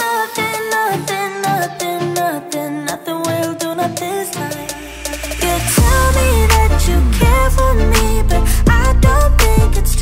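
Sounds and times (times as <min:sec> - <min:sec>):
song with sung melody: 0:00.0 - 0:10.0
steady beat: 0:00.4 - 0:10.0
deep sliding bass notes: 0:04.8 - 0:10.0.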